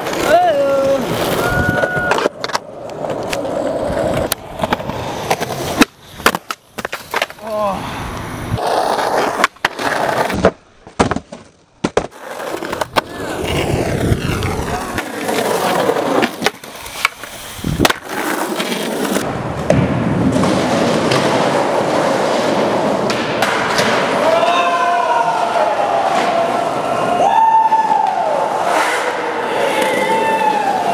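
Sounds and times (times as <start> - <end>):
skateboard popping and landing clacks: 0.0 - 7.6, 8.2 - 24.2
skateboard wheels rolling on concrete: 0.0 - 30.9.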